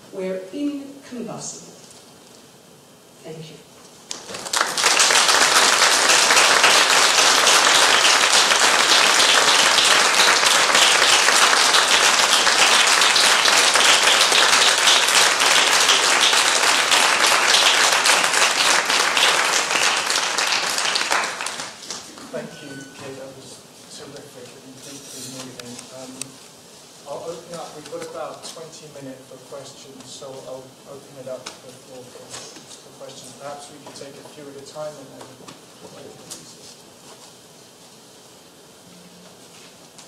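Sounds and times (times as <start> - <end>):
audience applauding: 4.1 - 22.2.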